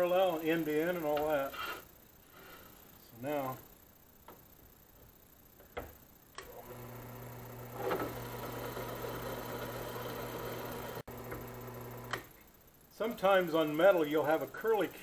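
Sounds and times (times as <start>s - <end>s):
drill press motor humming: 4.2s - 12.5s.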